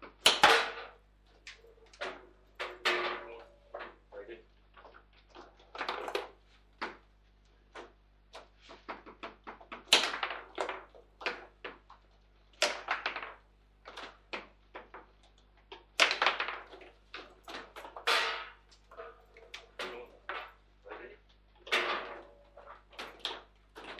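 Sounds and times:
table football rods clacking: 7.7 - 20.6, 21.6 - 23.9.

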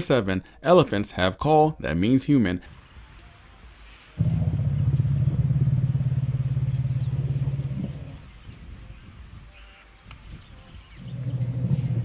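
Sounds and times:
elephant deep rumble: 4.2 - 8.5, 11.0 - 12.0.

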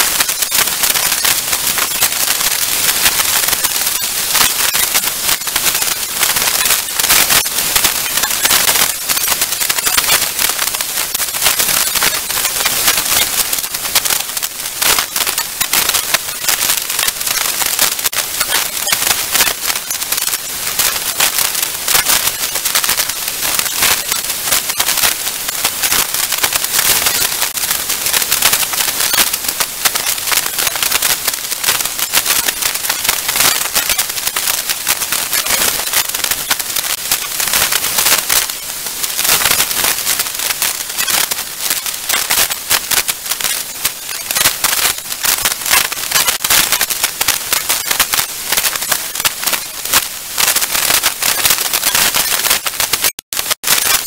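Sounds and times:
hurricane wind and rain: 0.0 - 54.0.

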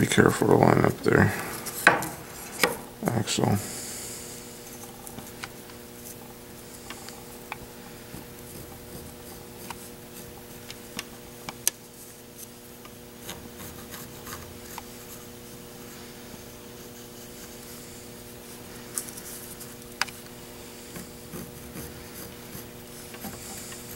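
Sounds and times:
steady low hum: 0.0 - 23.9
pencil scratching on paper: 8.1 - 10.4, 13.2 - 15.3, 16.8 - 18.6, 20.6 - 23.9.

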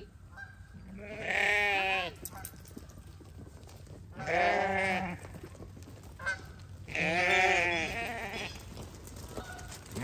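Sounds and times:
sheep bleating: 0.9 - 2.2, 4.2 - 5.2, 6.9 - 8.6.

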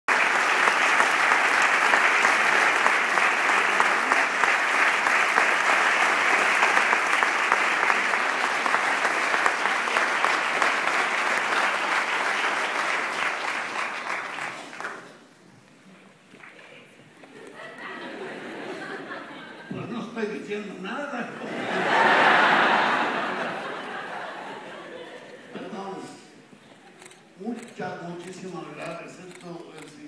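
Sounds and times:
audience applauding: 0.1 - 15.4.

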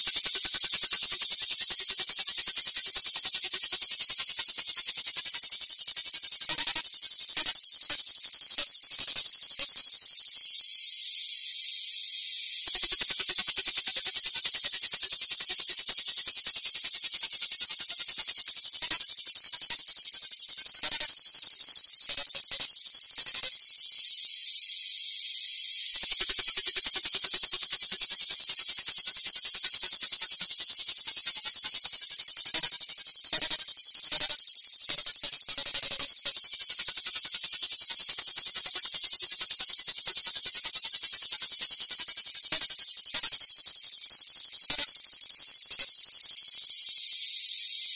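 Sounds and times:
cicada buzzing: 0.0 - 47.9.

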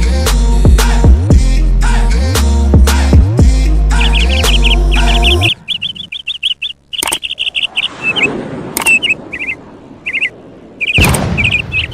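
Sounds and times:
birds chirping: 3.0 - 11.9
sharp clicks: 6.9 - 7.5, 8.8 - 9.2.

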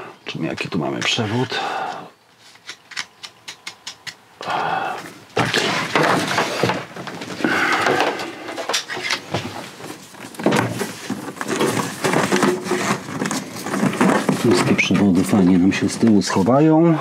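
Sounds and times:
cables being handled: 5.0 - 16.5.

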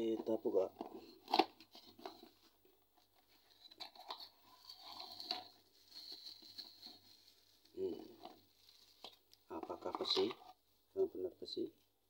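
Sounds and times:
bubble wrap crinkling: 3.2 - 10.4.

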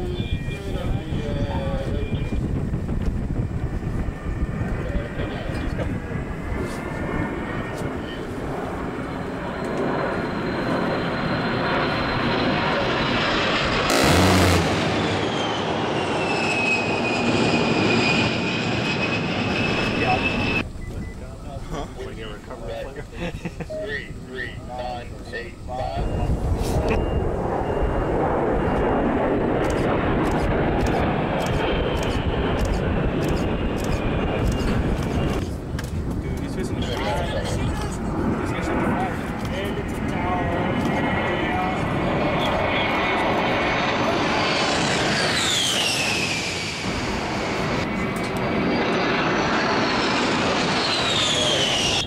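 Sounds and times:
jet engine noise: 0.0 - 52.0
jet whine falling in pitch: 4.2 - 21.6, 23.6 - 35.5, 38.5 - 52.0
sudden very loud burst: 13.8 - 16.9.

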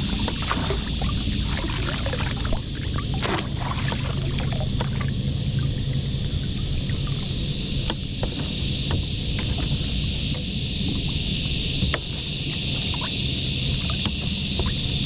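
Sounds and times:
water splashing and dripping: 0.0 - 7.2.

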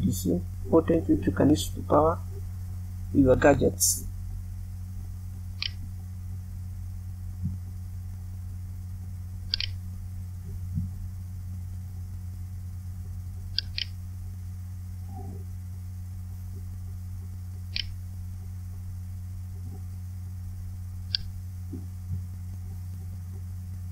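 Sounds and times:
electrical mains hum: 0.0 - 23.9
short sharp clicks: 9.5 - 9.8.

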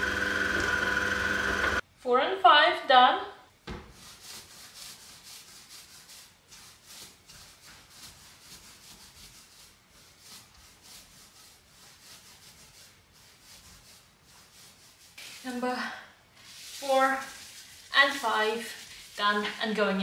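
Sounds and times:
palms rubbing dough on worktop: 3.7 - 15.7, 16.4 - 20.0.

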